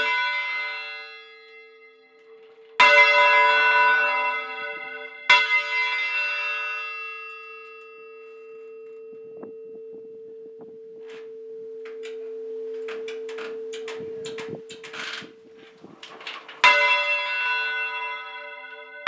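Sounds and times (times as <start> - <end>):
church bell hum note: 0.0 - 10.0, 16.6 - 19.0
church bell clang: 0.0 - 10.2, 11.1 - 19.0
knocks and rustles: 9.4 - 17.1.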